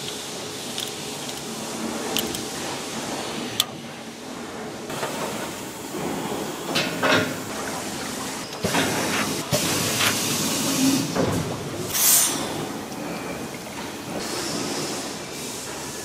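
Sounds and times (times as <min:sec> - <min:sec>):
compressed air hissing: 0:11.9 - 0:12.6.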